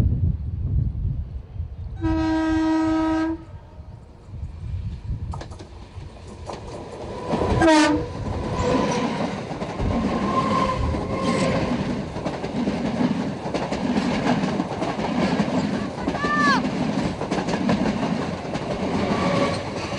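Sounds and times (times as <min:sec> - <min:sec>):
train horn: 0:02.0 - 0:03.9, 0:07.6 - 0:08.1
train coaches rumbling: 0:04.0 - 0:19.9
wheels clacking over rail joints: 0:05.3 - 0:19.9.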